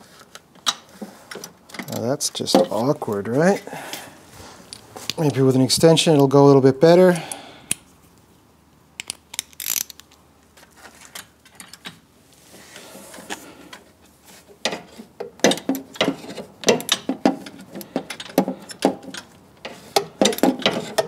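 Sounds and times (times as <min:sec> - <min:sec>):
socket ratchet clicking: 0:09.0 - 0:10.0.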